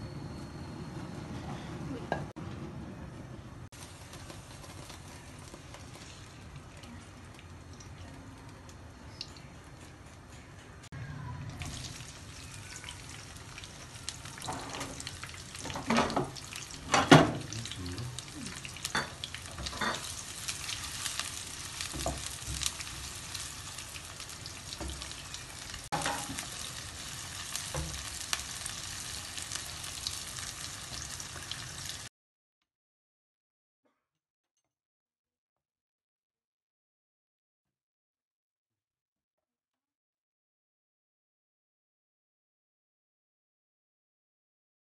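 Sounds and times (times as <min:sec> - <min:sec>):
onions sizzling in hot oil: 0:03.8 - 0:07.8, 0:11.6 - 0:32.1.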